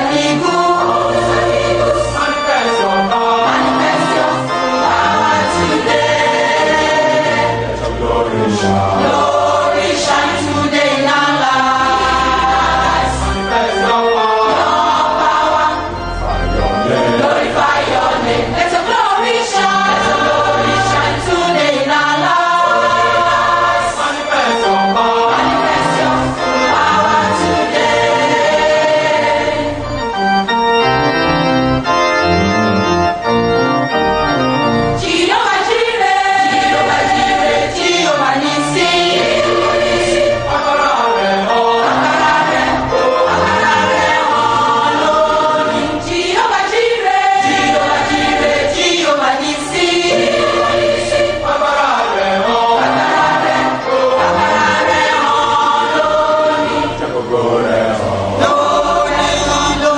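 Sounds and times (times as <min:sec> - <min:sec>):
gospel choir singing: 0:00.0 - 0:59.9
organ accompaniment: 0:00.0 - 0:59.9.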